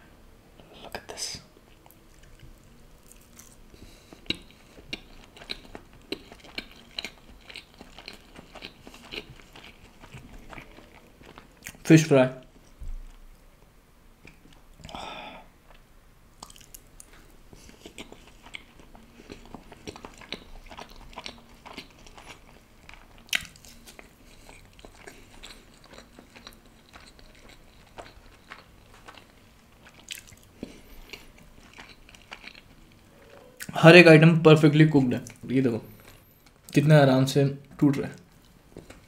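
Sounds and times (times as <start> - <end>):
chewing crunchy fried fish: 1.6 - 13.2, 16.4 - 33.8, 38.1 - 39.0.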